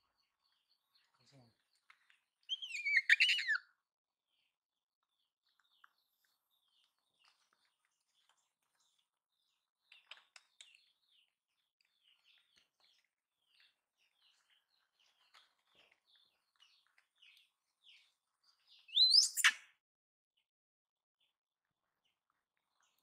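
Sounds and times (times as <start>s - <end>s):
high chirping calls: 2.5s - 3.6s, 18.9s - 19.6s.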